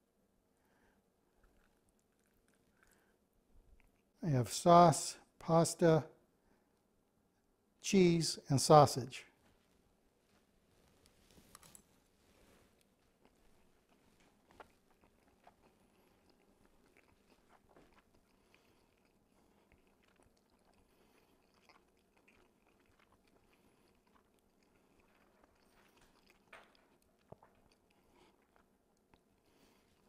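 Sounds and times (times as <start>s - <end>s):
faint chewing: 0.6s - 4.2s, 10.4s - 30.0s.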